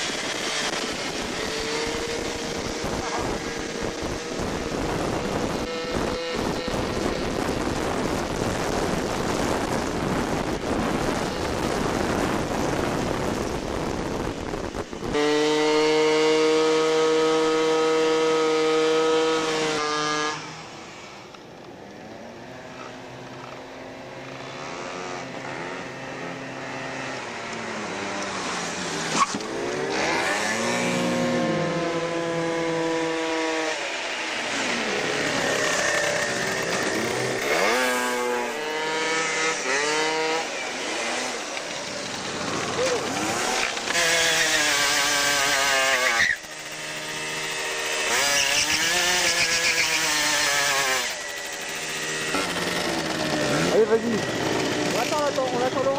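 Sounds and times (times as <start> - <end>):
wind rush over microphone: 0.0 - 15.8
scooter engine whine: 0.0 - 55.9.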